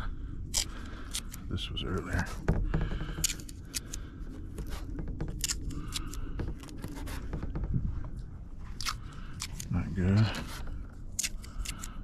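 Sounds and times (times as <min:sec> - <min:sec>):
low microphone rumble: 0:00.0 - 0:11.6.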